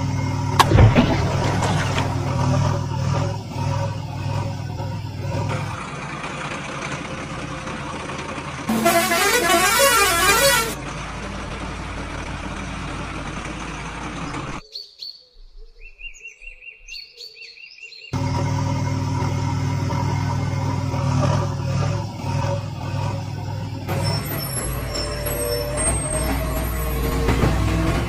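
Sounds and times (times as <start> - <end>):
horn-like warbling tone: 8.7 - 10.8.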